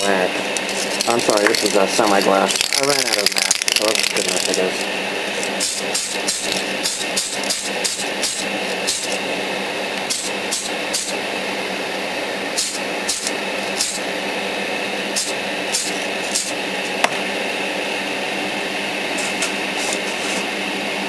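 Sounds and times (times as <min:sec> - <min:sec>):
exhaust fan hum: 0:00.0 - 0:21.0
spray can hissing puffs: 0:05.4 - 0:09.2, 0:10.0 - 0:11.2, 0:12.6 - 0:14.1, 0:15.1 - 0:16.7.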